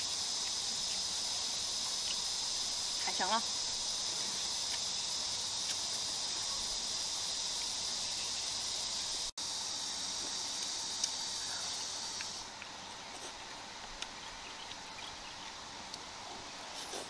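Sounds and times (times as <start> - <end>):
insect chorus chirring: 0.0 - 12.6.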